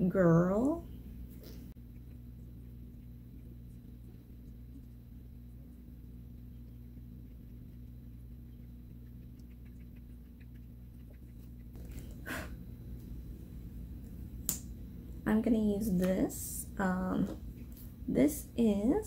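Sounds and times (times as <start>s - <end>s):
low steady hum: 0.0s - 19.0s
faint small ticks: 6.4s - 11.8s.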